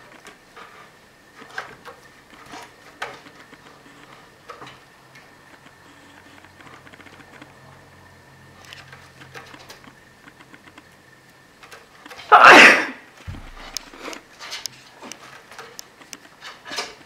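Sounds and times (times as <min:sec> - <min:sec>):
cat sneezing: 0:12.3 - 0:13.0
low thump: 0:13.3 - 0:13.6.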